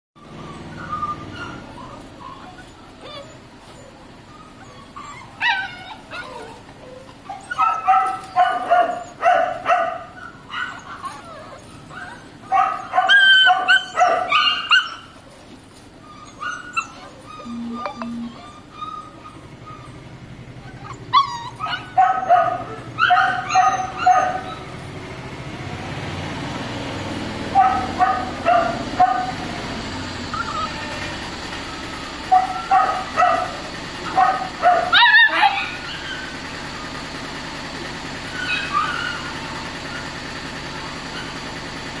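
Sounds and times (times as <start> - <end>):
puppies yipping and barking: 0.2 - 25.0, 27.4 - 42.0
steady background hum: 16.0 - 24.6.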